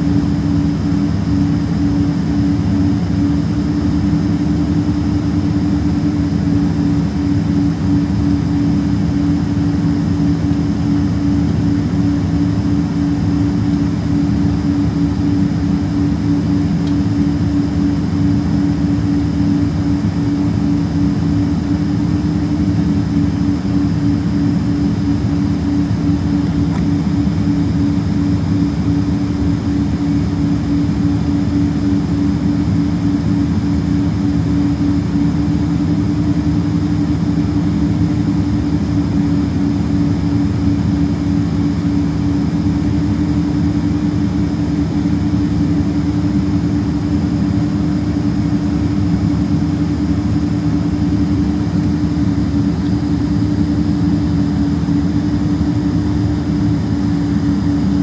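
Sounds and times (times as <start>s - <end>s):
jet engines humming in cabin: 0.0s - 58.0s.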